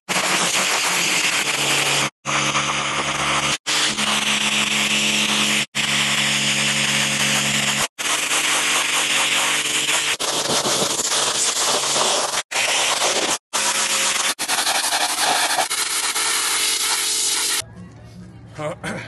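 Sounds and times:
pressure washer water hiss: 0:07.2 - 0:13.4, 0:14.1 - 0:17.6.

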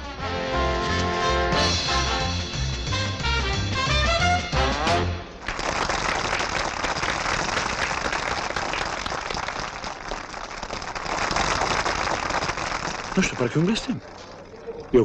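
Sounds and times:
swing band playing: 0:00.0 - 0:05.3
audience applause: 0:05.4 - 0:15.0.

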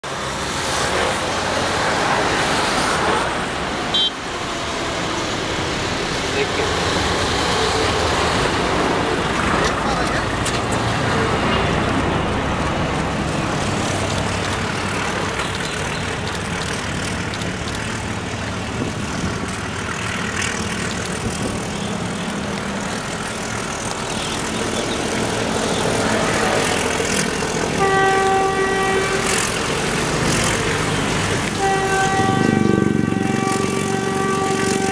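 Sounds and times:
locomotive horn: 0:03.9 - 0:04.3, 0:27.6 - 0:30.0, 0:31.4 - 0:34.9
diesel locomotive engine chugging: 0:04.4 - 0:34.9.

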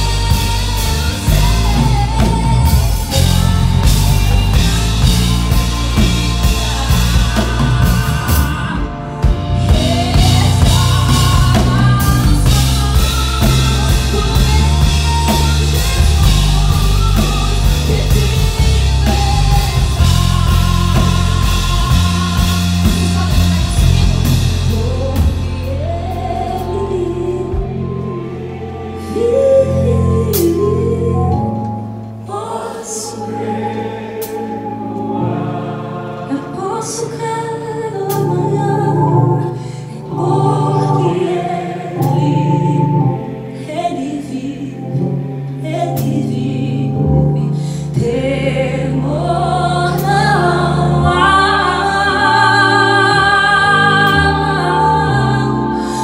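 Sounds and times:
rock band playing: 0:00.0 - 0:32.2
woman singing: 0:00.0 - 0:33.6, 0:36.3 - 0:56.0.

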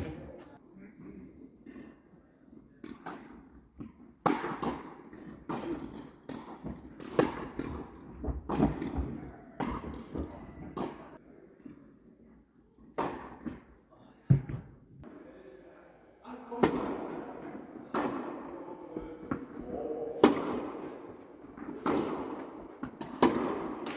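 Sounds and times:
tennis ball bouncing on hard court: 0:02.8 - 0:11.0, 0:14.3 - 0:14.8, 0:21.6 - 0:23.9
racket striking tennis ball: 0:02.8 - 0:11.1, 0:13.0 - 0:13.6, 0:20.2 - 0:21.0, 0:21.6 - 0:23.9.

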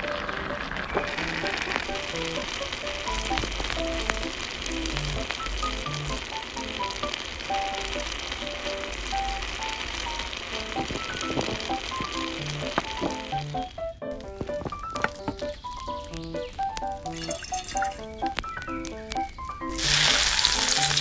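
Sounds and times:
water boiling in clay pot: 0:00.0 - 0:21.0
plucked melodic music: 0:01.3 - 0:21.0.

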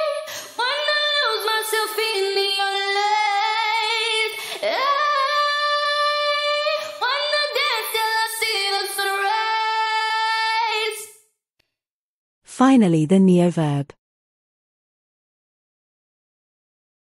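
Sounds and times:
woman singing a cappella: 0:00.0 - 0:11.2.

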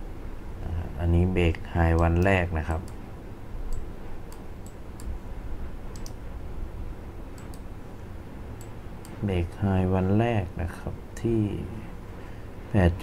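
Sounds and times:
mouse and keyboard clicks: 0:05.9 - 0:06.2.

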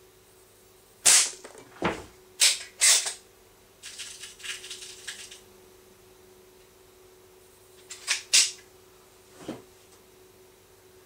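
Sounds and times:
air pistol firing: 0:01.0 - 0:01.4.

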